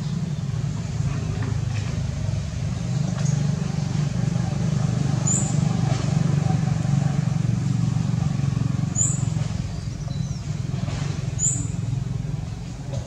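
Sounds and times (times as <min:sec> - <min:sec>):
low engine rumble: 0:00.0 - 0:13.0.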